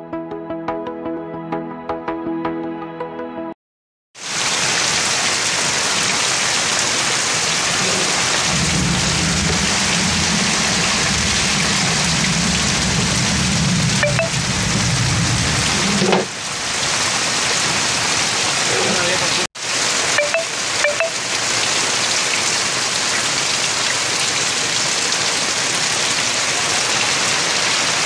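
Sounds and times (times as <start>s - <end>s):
heavy rain pouring on street: 4.2s - 28.0s
low rumble: 7.9s - 16.0s.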